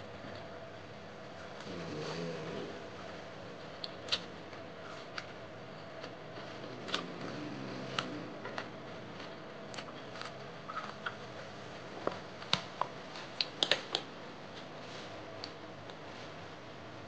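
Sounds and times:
faint hum: 0.0 - 17.0
chewing: 3.8 - 11.2.

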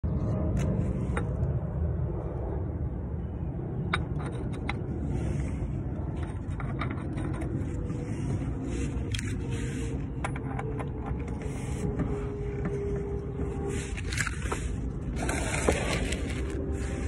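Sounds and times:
low rumble: 0.0 - 17.0.

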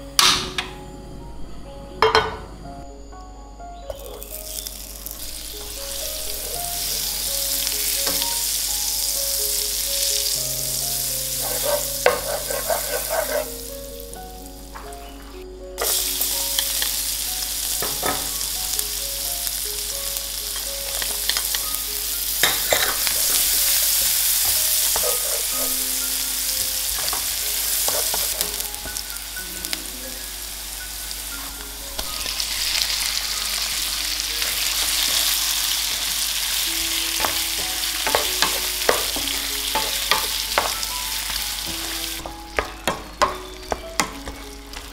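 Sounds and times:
food sizzling in a pan: 3.9 - 44.9
utensil scraping and clinking pan: 22.4 - 23.6, 24.4 - 25.8.

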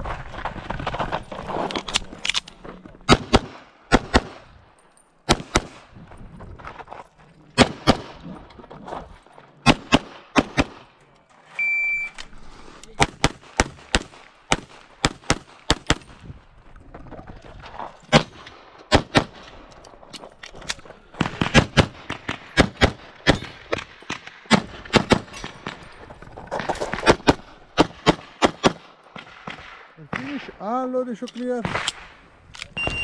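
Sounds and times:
pistol shots: 3.1 - 4.5, 5.2 - 5.9, 7.6 - 8.2, 9.6 - 10.9.

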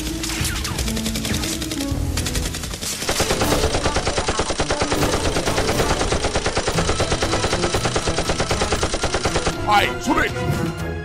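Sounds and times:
machine-gun sound effect: 0.3 - 9.7
toy blaster firing: 3.0 - 9.5.

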